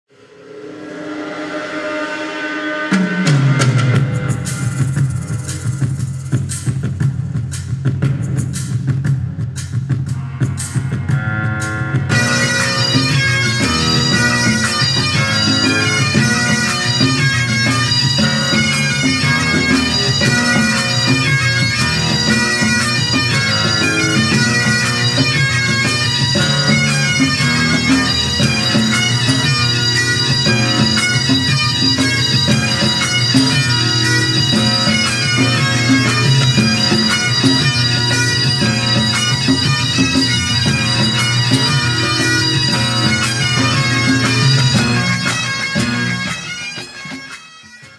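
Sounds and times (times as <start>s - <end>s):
drums with rapid strokes: 0.9s - 47.9s
bagpipes playing melody: 10.4s - 47.9s.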